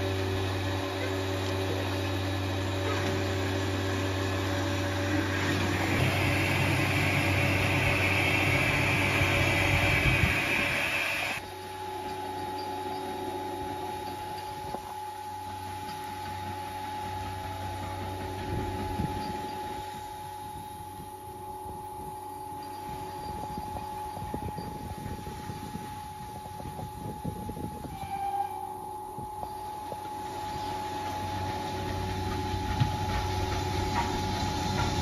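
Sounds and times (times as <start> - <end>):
steady high whine: 0.0 - 35.0
steam hissing: 5.0 - 11.4, 29.1 - 35.0.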